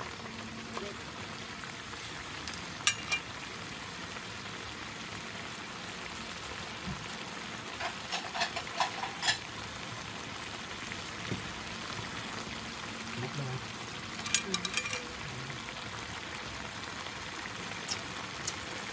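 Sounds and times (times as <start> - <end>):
food sizzling in a wok: 0.0 - 18.9
metal ladle clinking on wok: 2.9 - 3.2, 7.8 - 9.5, 14.2 - 15.1
ladle scraping wok: 7.7 - 9.5, 14.2 - 15.2.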